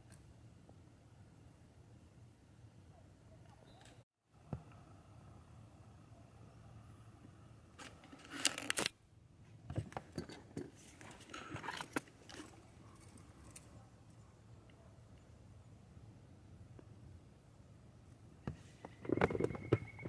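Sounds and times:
rustling and scraping handling noises: 0:07.8 - 0:13.8, 0:18.5 - 0:20.0.

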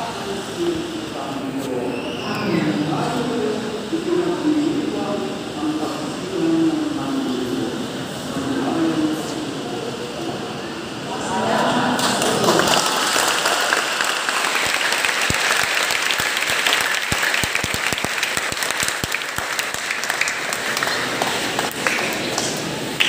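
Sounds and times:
crowd applauding: 0:11.8 - 0:23.0.

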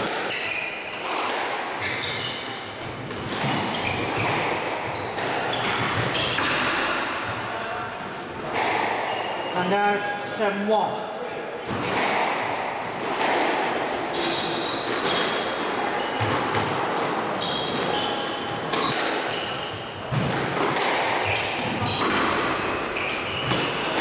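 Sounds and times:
squash ball hitting rackets and walls: 0:00.0 - 0:09.6, 0:11.6 - 0:24.0
shoes squeaking on wooden floor: 0:01.8 - 0:06.7, 0:08.6 - 0:09.6, 0:13.3 - 0:16.6, 0:17.2 - 0:20.2, 0:21.2 - 0:24.0.

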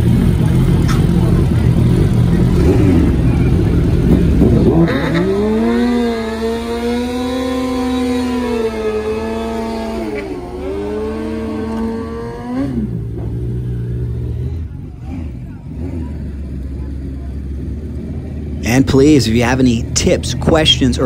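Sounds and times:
motorcycle engine at high revs: 0:00.0 - 0:19.0.

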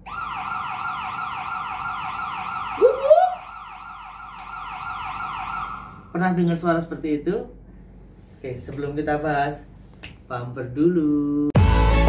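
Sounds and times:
ambulance siren yelping: 0:00.0 - 0:06.1.

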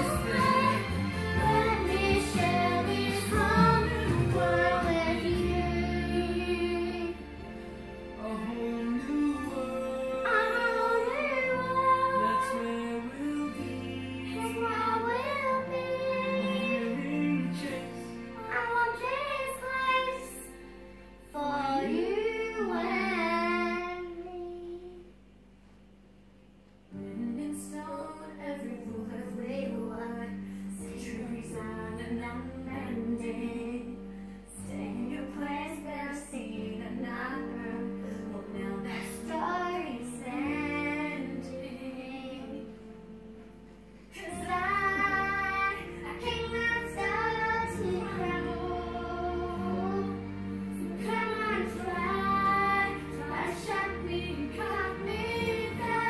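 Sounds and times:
song with high sung lead: 0:00.0 - 0:24.4, 0:43.9 - 0:56.0.

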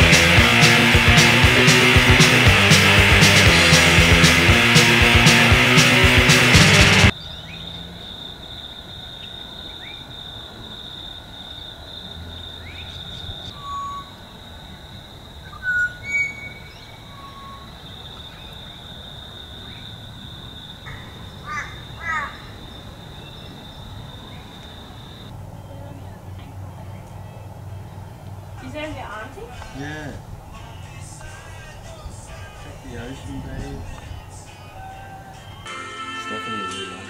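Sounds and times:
loud rock music: 0:00.0 - 0:07.1
high insect drone: 0:07.1 - 0:25.4
bird calls and chirps: 0:12.6 - 0:14.2, 0:15.5 - 0:18.7.

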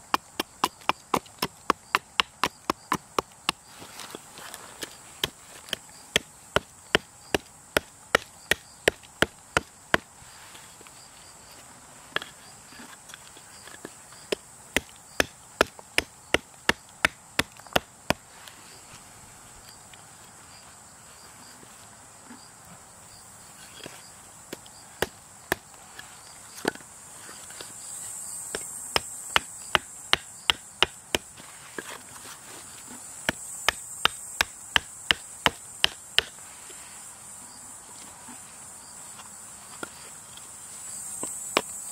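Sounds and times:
hatchet chopping wood: 0:00.0 - 0:04.2, 0:05.2 - 0:10.1, 0:14.3 - 0:18.2, 0:24.5 - 0:25.7, 0:28.5 - 0:31.3, 0:33.3 - 0:36.4.

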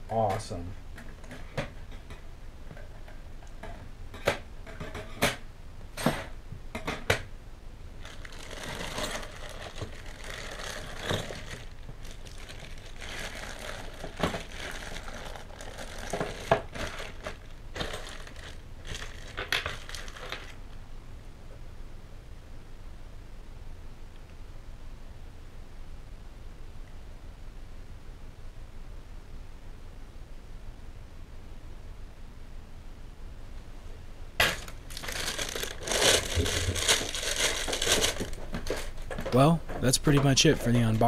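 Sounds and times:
plastic bags crinkling: 0:08.0 - 0:20.6, 0:34.4 - 0:41.0.

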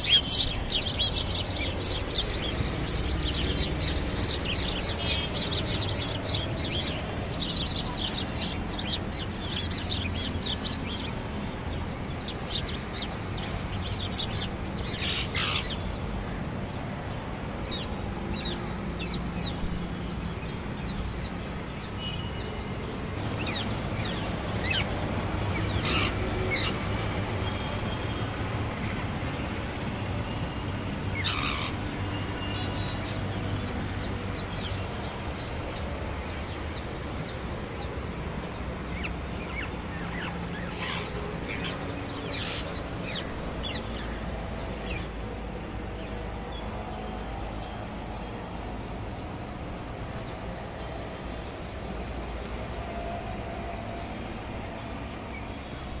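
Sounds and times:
low rumble of city traffic: 0:00.0 - 0:56.0
shrill parakeet calls: 0:25.8 - 0:26.7, 0:31.2 - 0:31.8, 0:39.0 - 0:41.6.

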